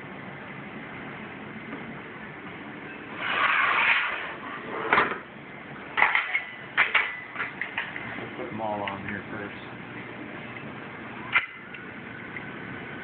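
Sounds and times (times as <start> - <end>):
metal frame scraping: 3.1 - 5.0.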